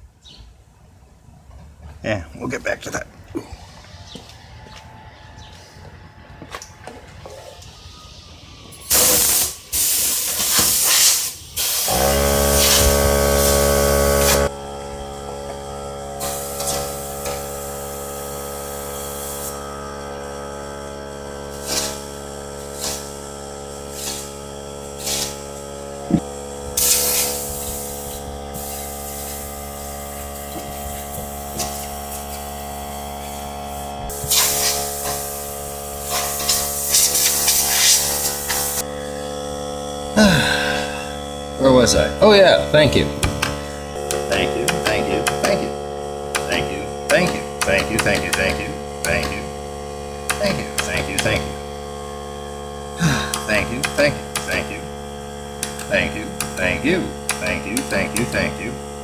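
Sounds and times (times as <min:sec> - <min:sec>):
air compressor humming: 0:03.2 - 0:59.0
compressed air blasting: 0:07.8 - 0:42.1, 0:43.1 - 0:59.0.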